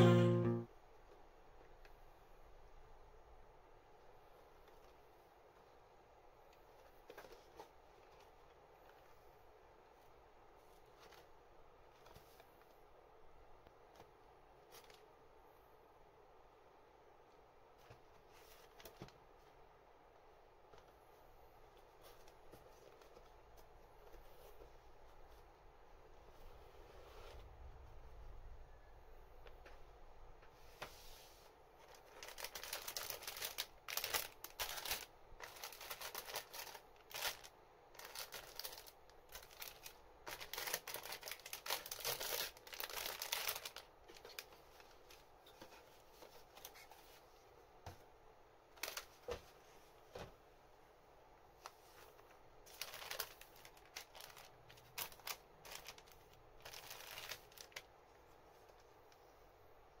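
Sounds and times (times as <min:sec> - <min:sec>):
plastic bags crinkling: 0:31.9 - 0:44.5, 0:52.6 - 0:57.9.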